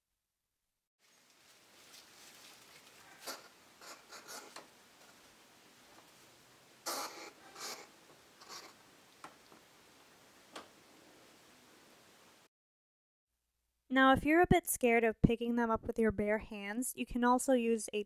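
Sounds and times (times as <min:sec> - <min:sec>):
paper bedding rustling: 0:01.0 - 0:03.4.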